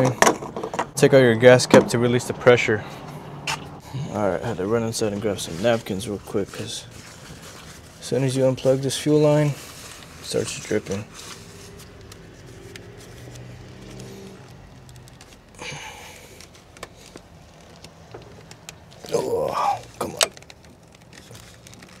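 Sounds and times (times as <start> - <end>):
napkin rustling: 5.0 - 14.1.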